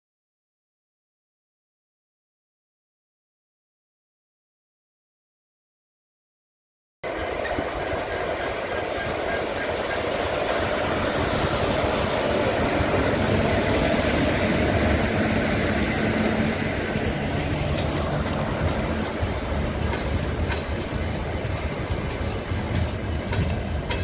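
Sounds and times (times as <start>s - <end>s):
train wheels rumbling on track: 7.0s - 24.0s.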